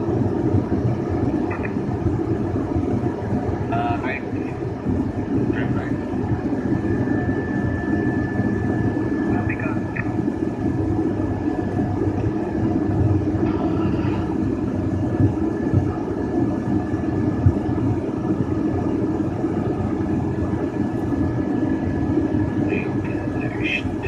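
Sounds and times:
propeller airplane engine running: 0:00.0 - 0:24.0
thin steady high tone: 0:06.7 - 0:10.2.

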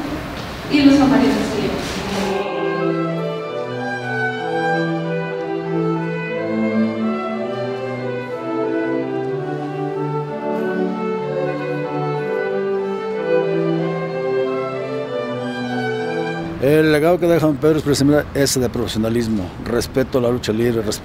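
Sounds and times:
slow bowed strings music: 0:02.1 - 0:16.8.

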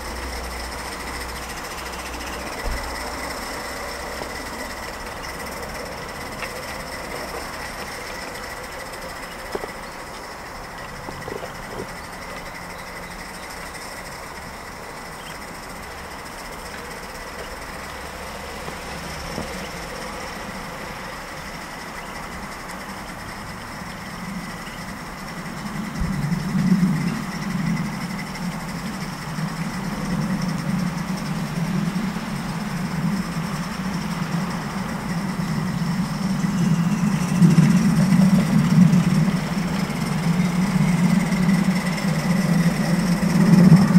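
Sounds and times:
model steam locomotive hissing: 0:00.0 - 0:43.9
low rumbling sound: 0:23.7 - 0:43.9.

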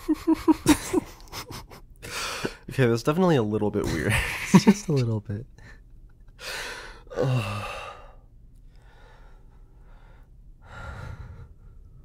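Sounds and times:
man sighing: 0:06.4 - 0:08.2
soft breaths: 0:06.4 - 0:12.0.

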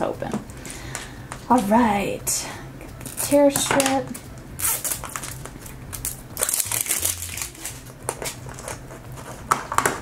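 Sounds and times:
plastic wrapping crinkling: 0:04.1 - 0:10.0.

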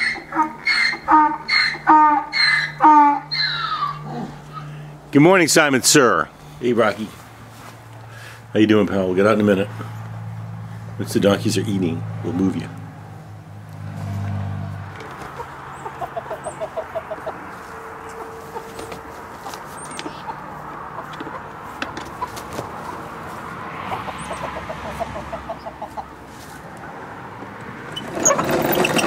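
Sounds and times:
chickens clucking: 0:00.0 - 0:04.8, 0:15.0 - 0:26.3.

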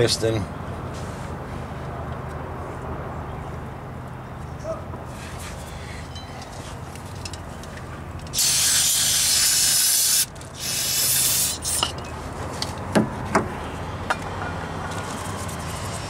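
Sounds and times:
aerosol spray hissing: 0:08.4 - 0:11.8.

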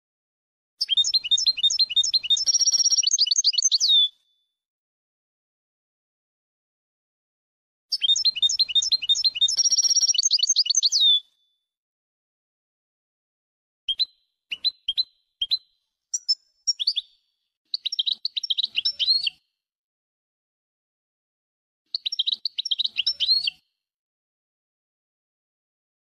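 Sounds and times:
goldfinch sharp chirps: 0:00.8 - 0:04.1, 0:07.9 - 0:11.2, 0:13.9 - 0:19.4, 0:21.9 - 0:23.6.

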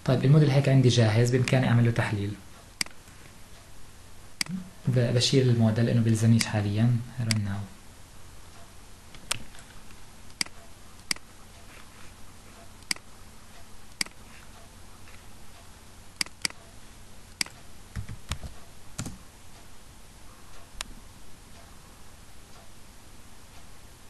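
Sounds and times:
faint steady hum: 0:00.0 - 0:24.0
computer mouse and keyboard clicks: 0:09.1 - 0:11.9, 0:12.6 - 0:13.1, 0:13.9 - 0:14.5, 0:16.2 - 0:16.7, 0:17.4 - 0:19.2.

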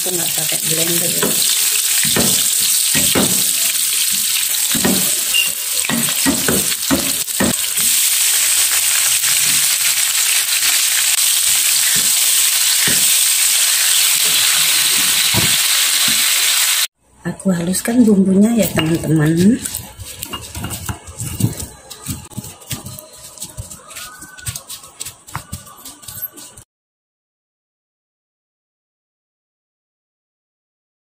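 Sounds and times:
loud sizzle of frying: 0:00.0 - 0:16.9
spatula knocking against pan: 0:01.2 - 0:03.6, 0:04.7 - 0:07.7.

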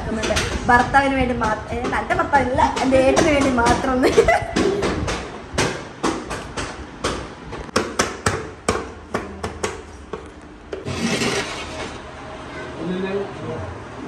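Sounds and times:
sharp irregular knocks: 0:00.1 - 0:09.8.

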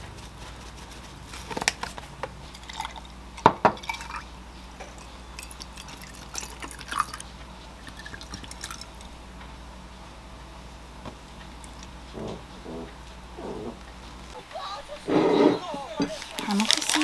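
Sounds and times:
liquid pouring over ice: 0:05.4 - 0:07.2, 0:07.8 - 0:09.1.

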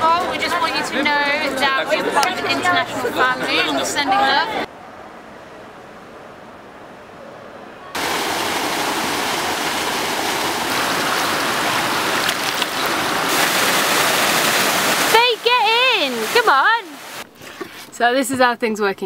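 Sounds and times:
water rushing in a pool: 0:08.0 - 0:17.3.

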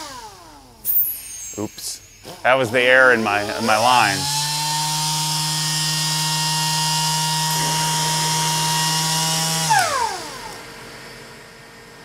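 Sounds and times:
pneumatic tool whine and air hiss: 0:00.0 - 0:10.8
air compressor humming: 0:00.0 - 0:11.3.

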